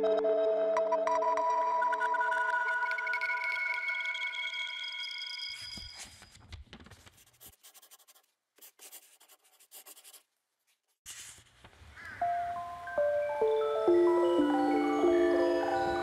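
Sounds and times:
scratchy writing strokes on paper: 7.0s - 11.5s
bright mallet percussion notes: 12.3s - 16.0s.

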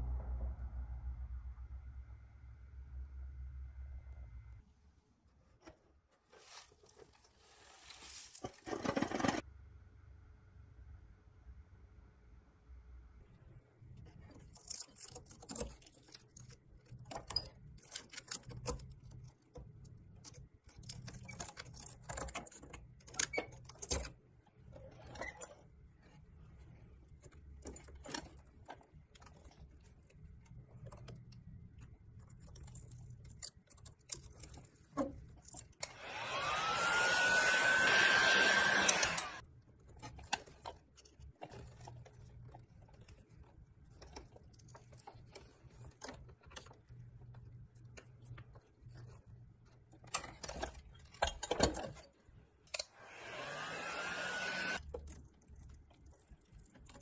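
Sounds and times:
screwdriver scraping metal: 35.4s - 39.4s, 52.7s - 54.8s
small motor whining: 35.8s - 39.4s, 53.0s - 54.8s.

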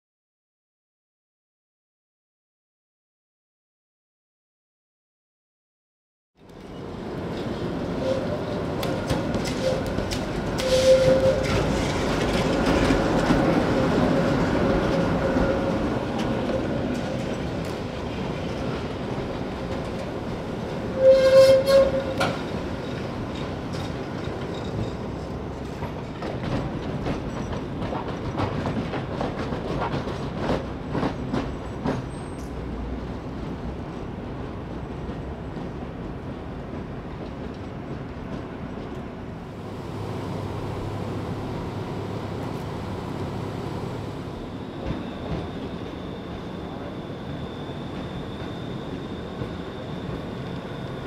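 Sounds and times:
tram whine on rails: 6.4s - 51.0s.

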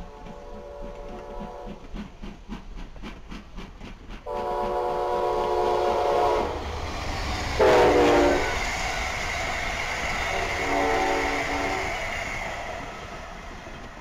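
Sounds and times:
locomotive air horn: 0.0s - 1.8s, 4.3s - 6.6s, 7.6s - 8.6s, 10.3s - 12.0s.

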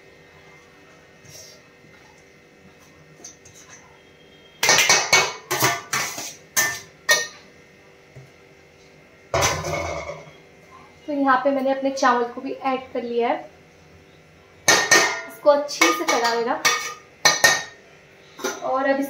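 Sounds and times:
metal spoon clinking on plate and pot: 4.6s - 7.4s, 14.7s - 17.8s.

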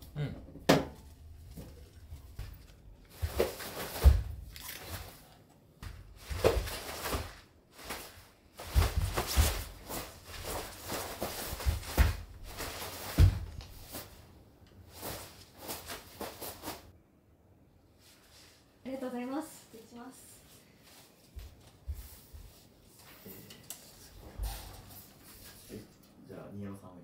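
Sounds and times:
rustling: 6.1s - 16.9s.

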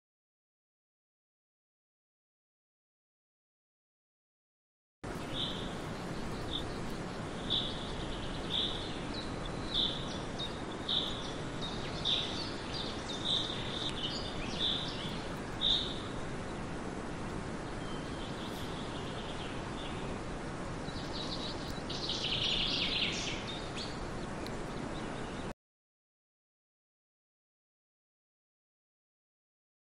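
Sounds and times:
background hiss: 5.0s - 25.5s
bird chirping: 5.1s - 16.7s, 17.6s - 20.2s, 20.8s - 25.5s.

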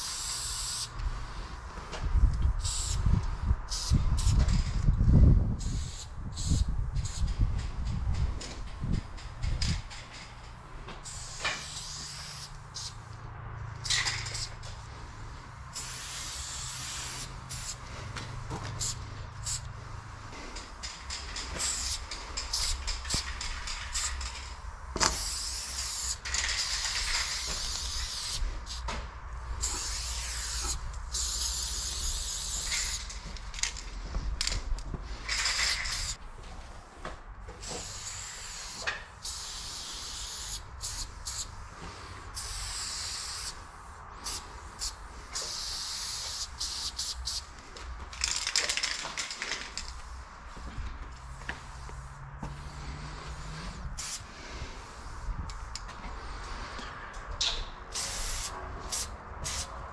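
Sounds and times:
spray paint can hissing: 0.0s - 1.1s, 2.5s - 4.6s, 5.6s - 8.2s, 11.0s - 13.1s, 13.8s - 33.7s, 35.3s - 36.2s, 37.6s - 47.5s, 48.2s - 55.8s, 57.9s - 59.7s.

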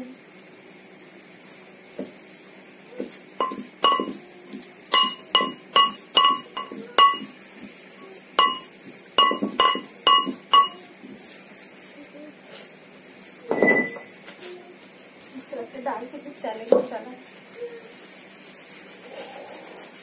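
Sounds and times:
pestle clinking in metal mortar: 3.4s - 4.2s, 4.9s - 7.5s, 8.4s - 10.9s.

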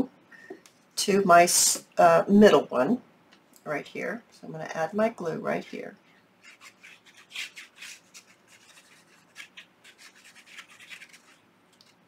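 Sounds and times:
glue nozzle scratching on paper: 6.4s - 11.4s.

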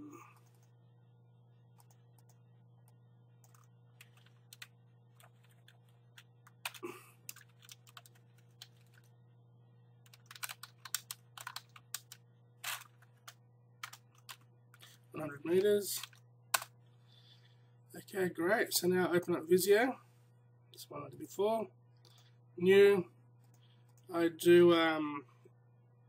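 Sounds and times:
faint electrical hum: 0.0s - 26.0s
computer keyboard typing: 1.8s - 9.1s, 10.0s - 14.5s.

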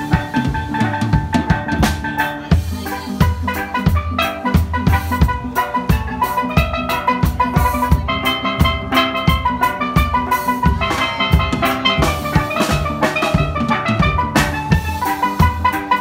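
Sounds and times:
drum kit steady beat: 0.0s - 16.0s
steelpans playing melody: 0.0s - 16.0s.

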